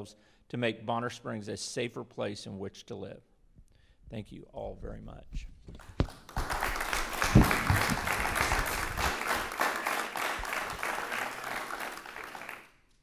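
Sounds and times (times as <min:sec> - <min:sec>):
audience clapping: 0:05.8 - 0:12.9
low thumps: 0:07.2 - 0:09.1.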